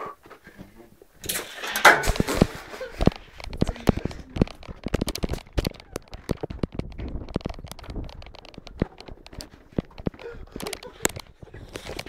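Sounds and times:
phone handling clicks and rustles: 1.3s - 12.0s.

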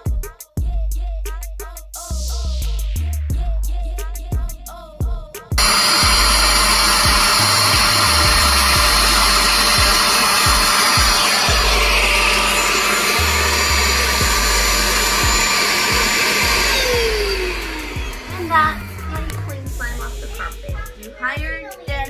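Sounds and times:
carpet cleaner suction motor whining: 5.6s - 20.8s.

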